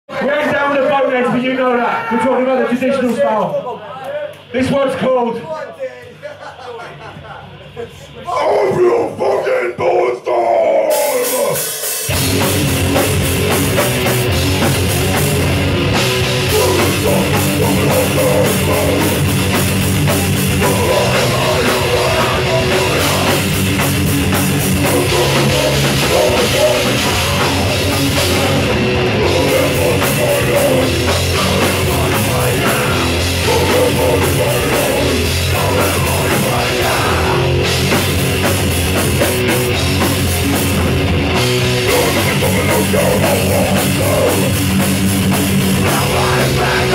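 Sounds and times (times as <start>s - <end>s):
people shouting vocals: 8.2s - 11.7s, 16.5s - 19.2s
distorted electric guitar: 10.4s - 46.9s
bass guitar: 10.6s - 46.9s
pounding drum kit: 10.8s - 46.9s.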